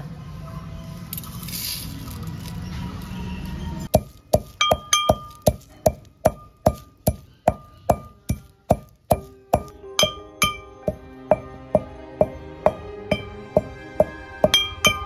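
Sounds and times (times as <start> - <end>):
metal pestle clinking in mortar: 3.9 - 15.0.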